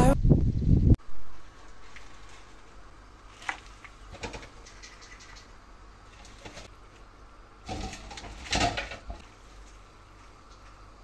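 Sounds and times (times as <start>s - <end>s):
spinach leaves rustling: 1.3s - 4.9s.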